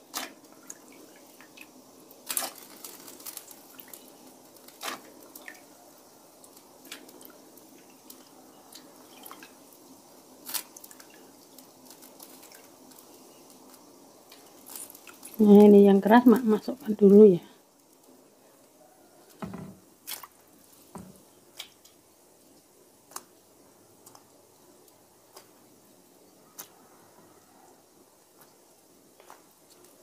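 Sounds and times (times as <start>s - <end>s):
water bubbling at the boil: 0.0s - 18.4s.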